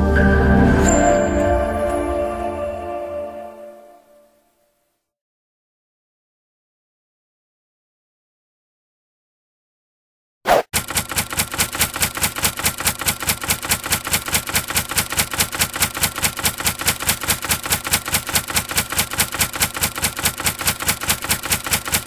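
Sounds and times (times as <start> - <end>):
typewriter keys clicking: 10.8 - 22.0.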